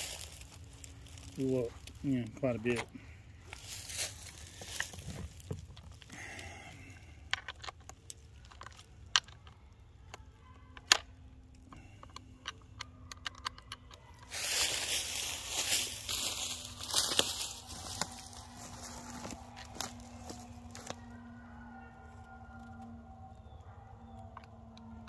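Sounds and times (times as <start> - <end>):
footsteps crunching dry leaves: 0.0 - 5.5, 14.2 - 21.2.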